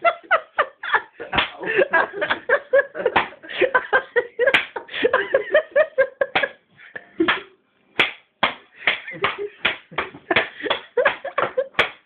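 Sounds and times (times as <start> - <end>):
group of people laughing: 0.0 - 7.3.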